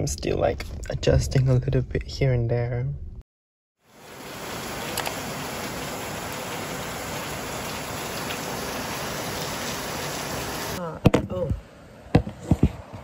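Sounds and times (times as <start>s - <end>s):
heavy rain falling: 3.8s - 10.8s
single raindrop hits: 4.4s - 6.8s.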